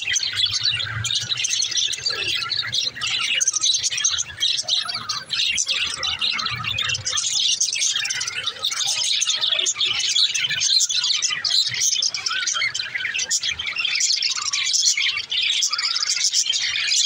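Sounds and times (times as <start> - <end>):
flock of birds chirping: 0.0 - 17.0.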